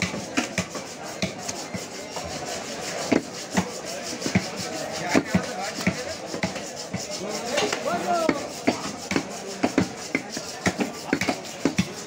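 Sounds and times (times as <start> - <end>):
cleaver chopping meat on wood: 0.0 - 1.6, 5.1 - 6.7, 7.7 - 12.0.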